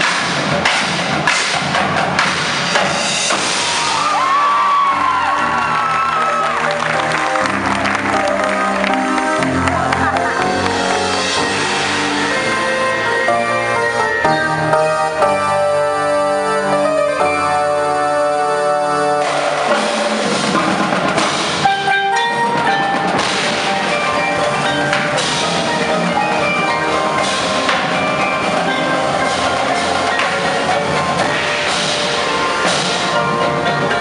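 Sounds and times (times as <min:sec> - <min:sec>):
marching drums and cymbals: 0:00.0 - 0:05.4, 0:19.2 - 0:34.0
sustained pitched chords: 0:05.1 - 0:34.0.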